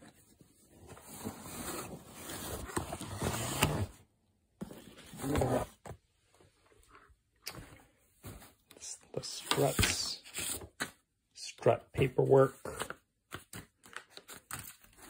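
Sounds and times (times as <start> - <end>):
cardboard scraping and rustling: 0.0 - 4.0, 4.6 - 6.0.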